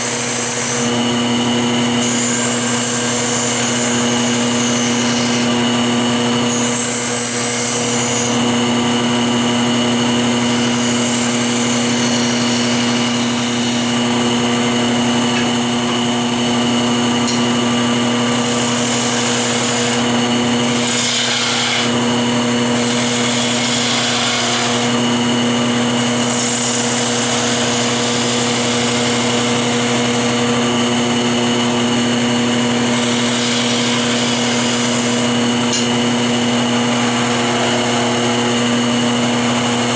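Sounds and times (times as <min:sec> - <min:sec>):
lathe motor hum: 0:00.0 - 0:39.9
turning tool cutting wood hiss: 0:02.0 - 0:05.6, 0:18.3 - 0:22.0, 0:22.7 - 0:25.1, 0:26.0 - 0:30.8, 0:32.7 - 0:36.0.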